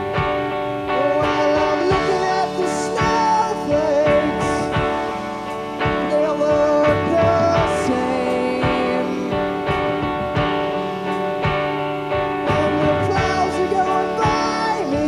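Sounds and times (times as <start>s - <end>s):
rock band playing slow song: 0.0s - 15.0s
drum hits: 8.6s - 14.6s.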